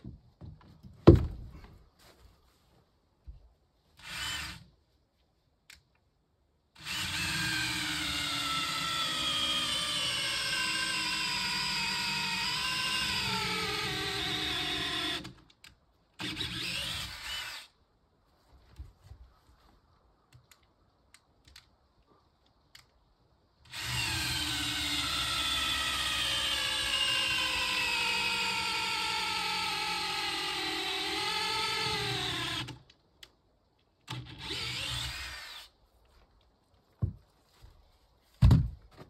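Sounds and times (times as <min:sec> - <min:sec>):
power drill boring into wood: 0:04.0 - 0:04.6, 0:06.8 - 0:15.4, 0:16.2 - 0:17.7, 0:23.7 - 0:32.8, 0:34.1 - 0:35.7
small clicks and knocks: 0:20.3 - 0:21.8, 0:22.4 - 0:23.0.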